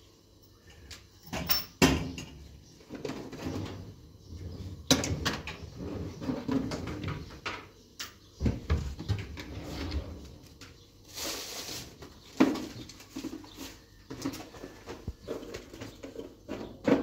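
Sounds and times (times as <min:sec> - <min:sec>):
knocks and clatter of objects: 0:01.2 - 0:04.0, 0:04.6 - 0:07.7, 0:12.0 - 0:17.0.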